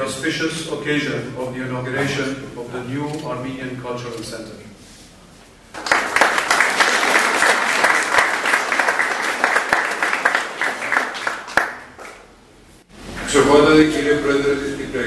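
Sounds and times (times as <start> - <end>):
group of people applauding: 5.7 - 12.3.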